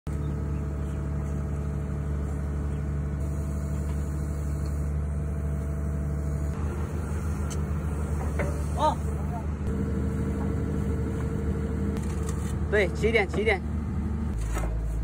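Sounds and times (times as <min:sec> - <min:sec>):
diesel engine idling: 0:00.1 - 0:12.0.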